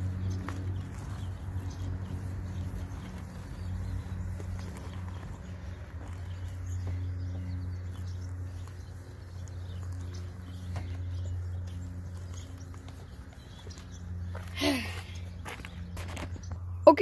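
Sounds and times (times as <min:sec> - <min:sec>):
sponge scrubbing wet paintwork: 0:00.0 - 0:06.6
steady low hum: 0:00.0 - 0:17.0.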